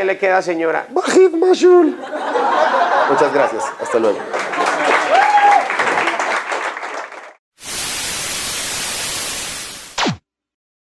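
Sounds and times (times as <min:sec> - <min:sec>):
audience applause: 0:03.0 - 0:07.4
static hiss: 0:07.6 - 0:10.2.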